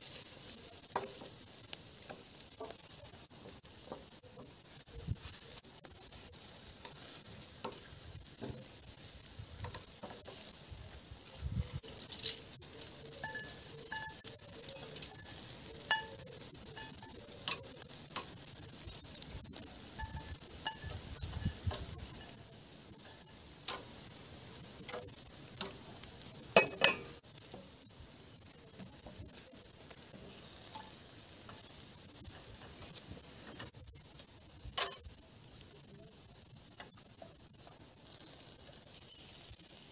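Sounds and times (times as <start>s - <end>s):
kebabs sizzling on grill: 0.0s - 39.9s
metal tongs clinking: 11.8s - 22.3s, 24.8s - 27.2s, 34.7s - 35.1s.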